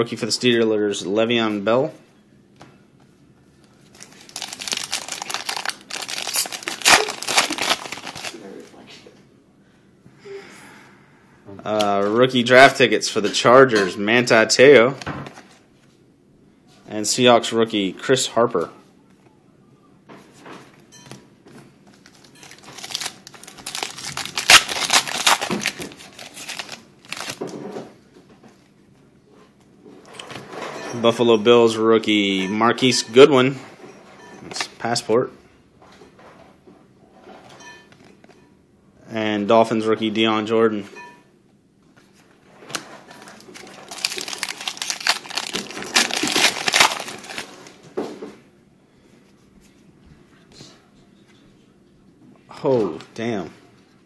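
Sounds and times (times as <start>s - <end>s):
wrapper crinkling: 3.9s - 8.7s, 22.0s - 27.5s, 42.7s - 47.8s.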